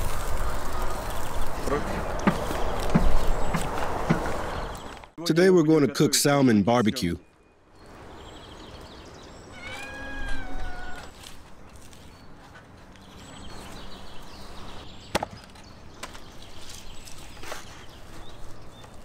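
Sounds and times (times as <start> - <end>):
drawn-out animal call: 9.5 - 11.1.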